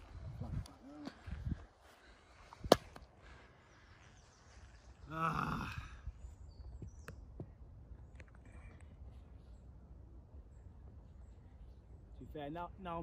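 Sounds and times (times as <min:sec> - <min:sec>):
faint outdoor ambience: 0:00.0 - 0:13.0
person wordless vocal sound: 0:05.0 - 0:06.0.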